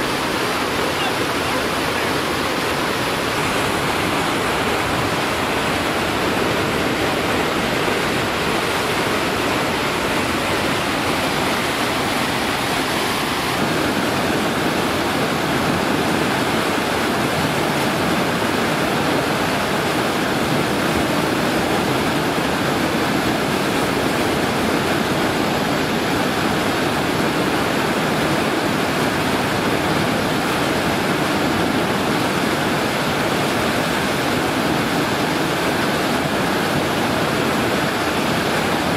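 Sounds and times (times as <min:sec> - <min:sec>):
river rushing over rocks: 0:00.0 - 0:38.9.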